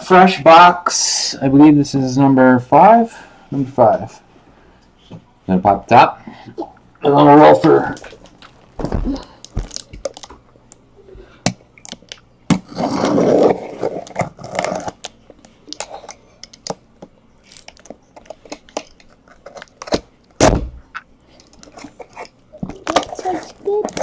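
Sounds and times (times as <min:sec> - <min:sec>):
cardboard scraping rustle: 0:12.6 - 0:15.0
sharp thud: 0:20.4 - 0:20.8.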